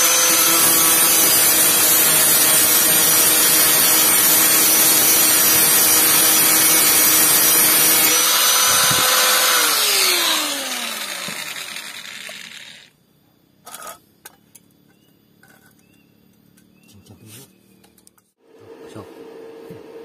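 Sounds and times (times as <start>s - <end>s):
angle grinder grinding steel: 0.0s - 12.9s
grinder motor winding down: 0.0s - 12.9s.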